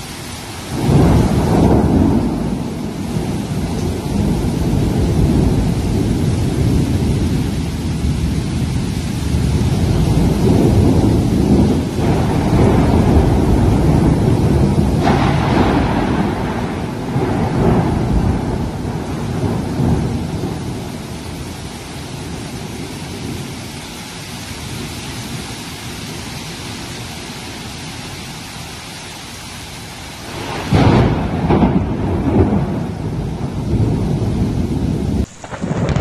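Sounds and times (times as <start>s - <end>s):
thunder rumbling: 0.0s - 23.7s, 30.2s - 36.0s
heavy rain pouring: 0.0s - 36.0s
loud thunderclap: 0.7s - 21.4s, 30.3s - 36.0s.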